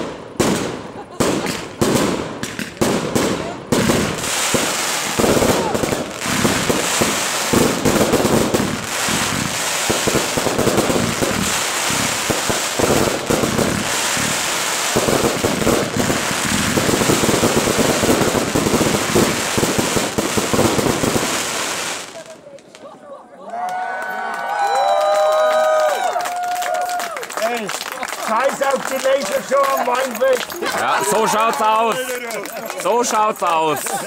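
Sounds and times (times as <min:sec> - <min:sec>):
fireworks bursting with bangs: 0:00.0 - 0:22.8
fireworks crackling: 0:00.0 - 0:22.9, 0:25.1 - 0:34.0.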